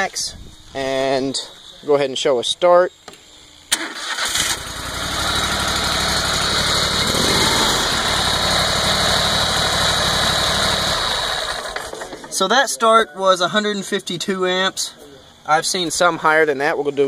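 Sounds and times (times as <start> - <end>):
electric starter cranking: 3.7 - 12.2
mower engine running: 3.8 - 12.2.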